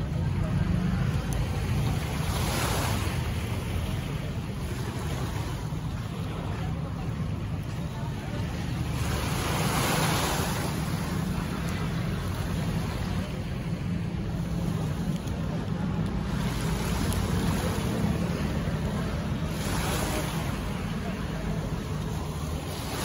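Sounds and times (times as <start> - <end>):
sea waves washing in: 0.0 - 23.0.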